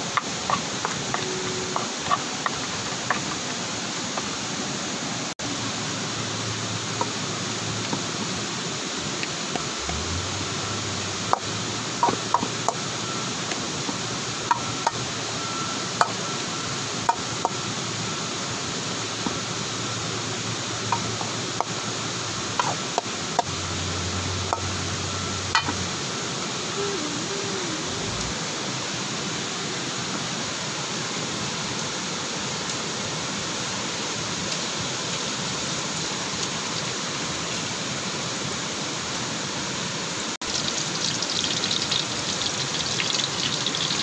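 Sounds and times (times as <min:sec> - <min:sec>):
waterfall rushing: 0:00.0 - 0:44.0.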